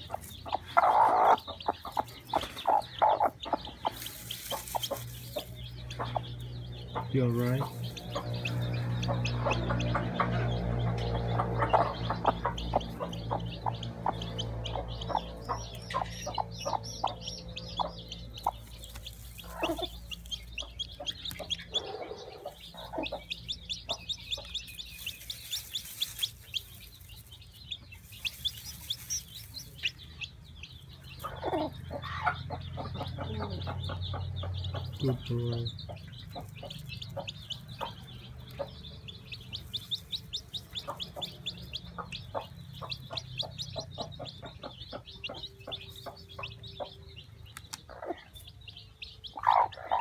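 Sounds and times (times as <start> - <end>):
chick peeping: 0.0 - 50.0
hen clucking: 0.0 - 50.0
straw rustling: 3.8 - 5.8, 18.5 - 21.6, 24.2 - 30.1.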